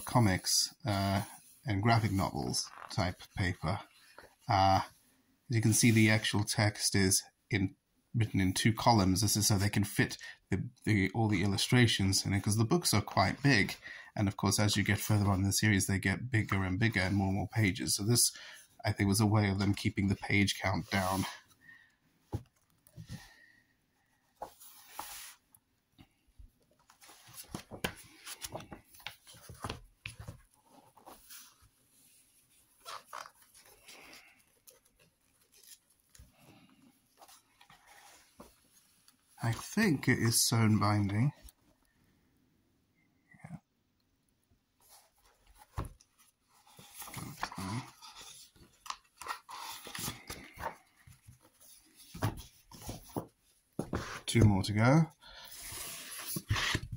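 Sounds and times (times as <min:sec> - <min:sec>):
book pages turning: 0:24.2 - 0:25.5, 0:26.8 - 0:41.6, 0:44.8 - 0:54.6, 0:55.4 - 0:56.9
paper crackles and taps: 0:27.3 - 0:30.6
soft book thump: 0:53.8 - 0:54.1.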